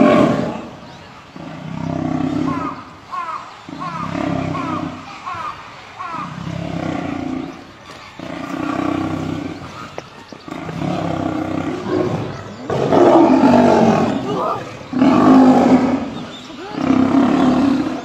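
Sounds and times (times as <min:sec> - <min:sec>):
lions growling and snarling: 0:00.0 - 0:02.9, 0:03.7 - 0:05.2, 0:06.2 - 0:18.0.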